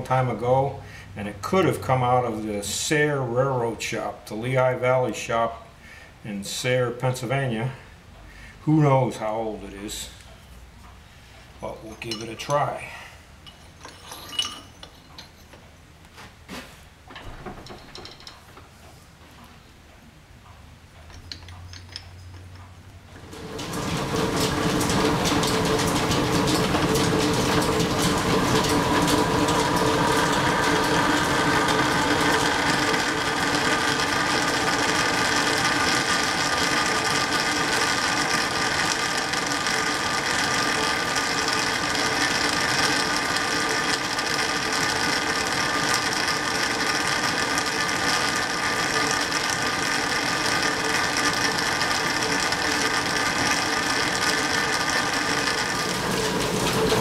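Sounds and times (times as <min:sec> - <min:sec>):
lathe gears whirring and clattering: 0:21.0 - 0:57.0.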